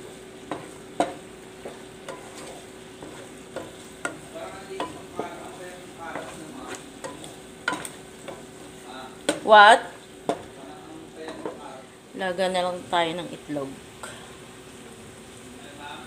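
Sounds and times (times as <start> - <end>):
wooden spatula scraping a pot: 0.0 - 9.5
chicken and onion sizzling in oil: 0.0 - 16.0.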